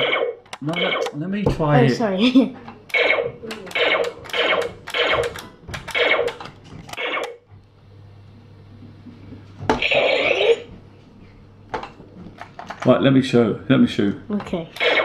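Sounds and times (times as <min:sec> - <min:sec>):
toy laser blaster firing effect: 0:00.0 - 0:01.2, 0:02.9 - 0:06.4, 0:07.0 - 0:07.4, 0:09.8 - 0:10.6, 0:14.8 - 0:15.0.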